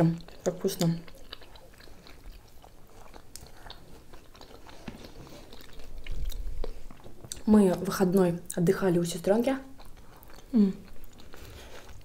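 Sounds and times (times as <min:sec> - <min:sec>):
wet mouth sounds with crunches: 0:00.0 - 0:08.6
people chewing food: 0:00.0 - 0:12.0.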